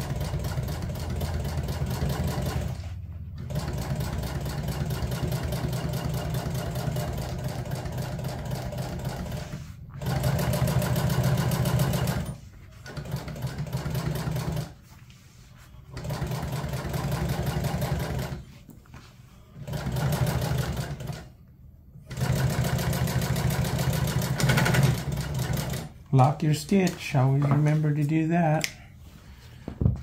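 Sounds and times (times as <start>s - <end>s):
sewing machine stitching: 0.0s - 14.8s, 15.9s - 18.5s, 19.6s - 21.4s, 22.1s - 26.0s.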